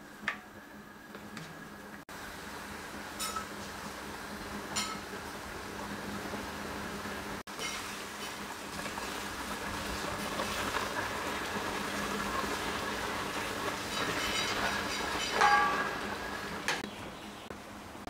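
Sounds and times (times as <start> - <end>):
ladle scraping a pan: 13.7 - 16.0.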